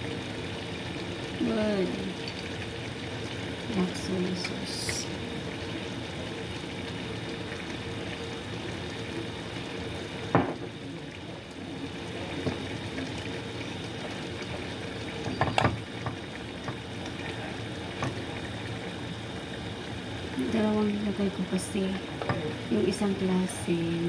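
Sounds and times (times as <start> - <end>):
chicken sizzling in a frying pan: 0.0 - 24.0.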